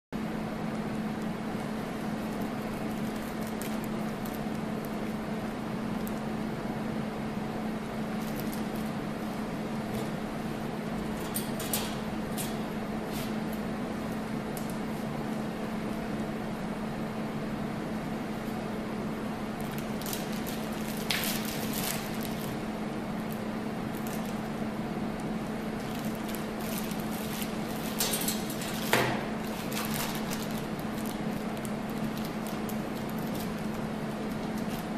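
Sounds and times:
steady low hum: 0.2s - 34.9s
plastic package crinkling: 19.6s - 22.6s, 23.2s - 24.4s, 25.8s - 34.9s.

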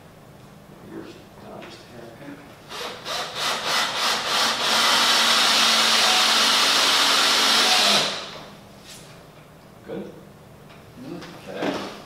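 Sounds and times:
power tool running against wood: 2.8s - 8.4s.

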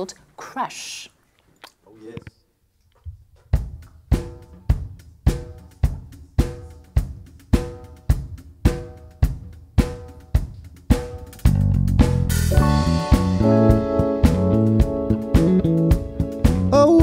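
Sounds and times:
drum kit steady beat: 3.3s - 17.0s
bass guitar: 11.4s - 17.0s.

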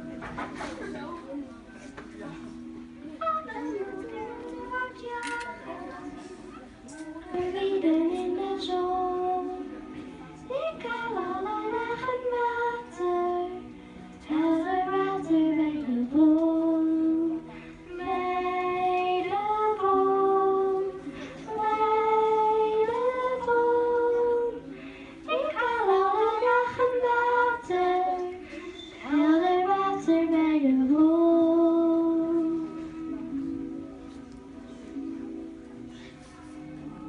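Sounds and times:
girl singing into microphone: 3.0s - 33.7s
short breaths: 24.7s - 25.3s.

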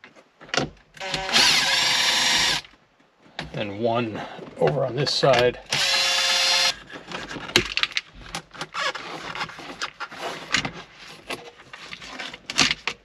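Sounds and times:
cordless drill running: 1.0s - 2.6s, 5.7s - 6.7s.

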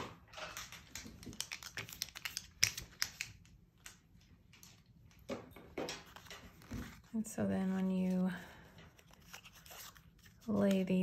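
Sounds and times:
paper strips rustling: 0.7s - 3.9s, 5.9s - 11.0s.

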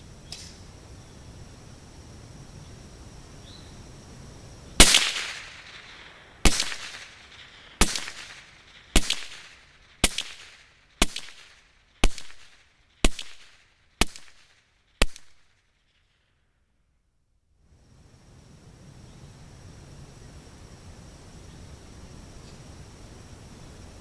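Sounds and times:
rifle shots with echo: 4.8s - 15.5s.

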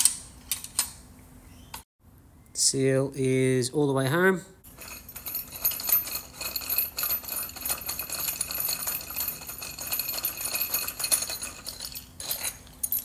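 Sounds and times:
metal bolts and nuts clinking: 4.7s - 13.0s.

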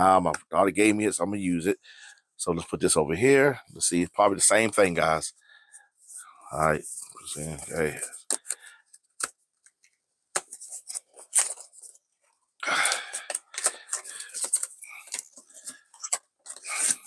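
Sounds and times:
paper packaging rustling and crinkling: 6.8s - 8.7s, 10.4s - 12.0s, 12.8s - 17.0s
cardboard crackling: 10.4s - 12.0s, 12.8s - 17.0s.

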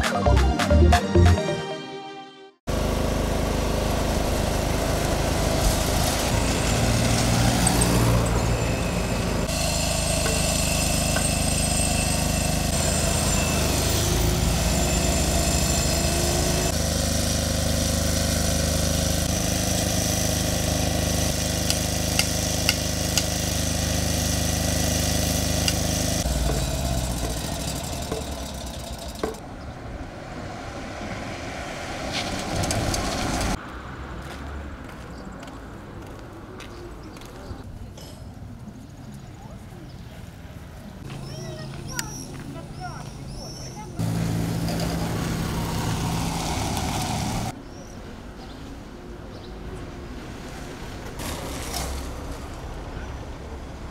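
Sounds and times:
engines running: 2.7s - 37.7s, 40.5s - 47.6s
vehicle passing: 26.2s - 37.7s, 44.0s - 47.6s.

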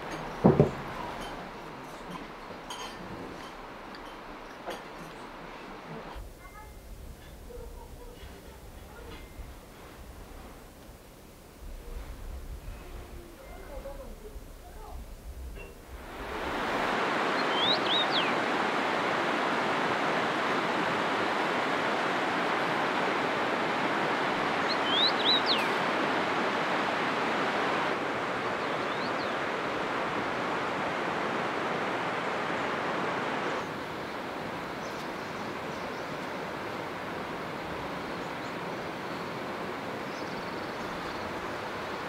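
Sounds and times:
rushing mountain river: 0.0s - 42.0s
bird chirping: 17.3s - 18.4s, 24.6s - 25.8s, 28.6s - 29.4s.

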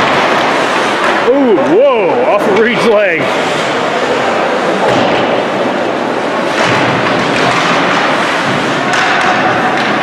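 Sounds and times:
knocks of sticks puck and skates: 0.0s - 1.3s, 4.8s - 10.0s
echoing rush of rink noise: 0.0s - 10.0s.

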